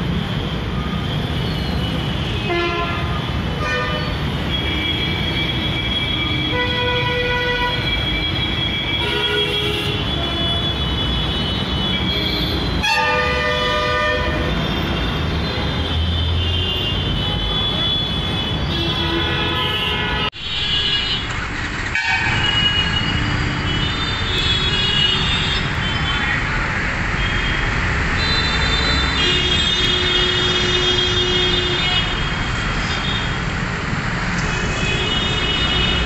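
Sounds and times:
traffic engines running: 0.0 - 36.0
car horns honking: 1.8 - 26.0.

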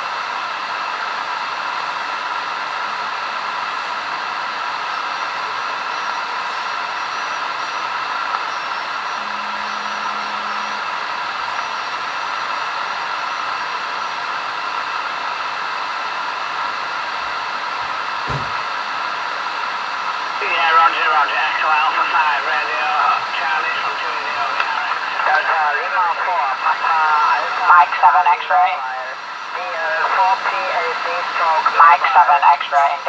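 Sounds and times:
radio receiver hiss: 0.0 - 33.0
low steady tone: 8.3 - 12.5.

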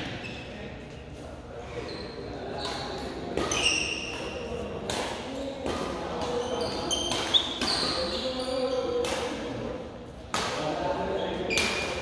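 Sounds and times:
sneakers squeaking on court floor: 0.0 - 0.8, 1.7 - 4.6, 6.2 - 9.3
rackets striking shuttlecock: 2.5 - 10.8.

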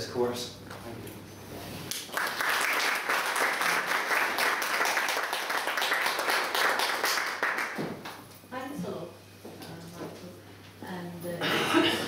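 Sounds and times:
audience applauding: 1.9 - 7.8.

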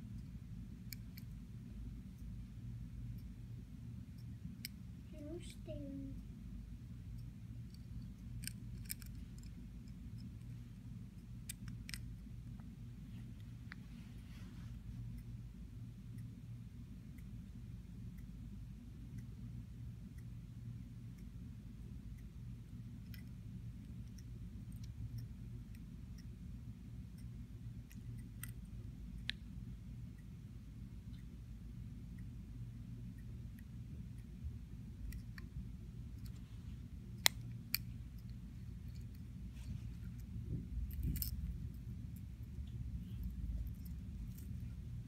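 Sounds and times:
faint low hum: 0.0 - 45.0
metal watch clicking: 7.1 - 10.5, 40.0 - 44.8
pocket watch light clicks: 7.2 - 10.0, 37.2 - 38.3, 40.9 - 41.4.

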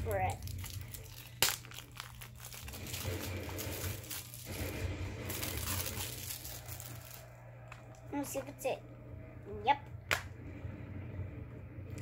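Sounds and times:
shrink wrap crinkling: 0.0 - 8.0.

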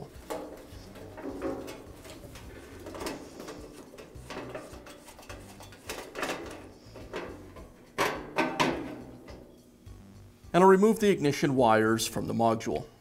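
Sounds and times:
small scrapes clicks and rattles: 0.0 - 8.1.

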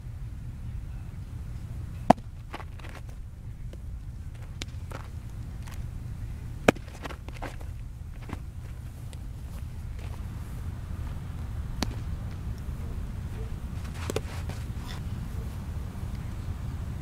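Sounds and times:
steady low rumble: 0.0 - 17.0
baseball smacking into mitt: 2.0 - 5.9, 6.6 - 10.3, 11.0 - 15.0.

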